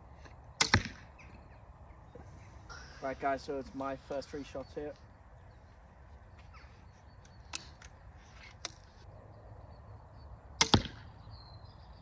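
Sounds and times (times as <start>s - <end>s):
crossbow string crack: 7.2s - 9.0s.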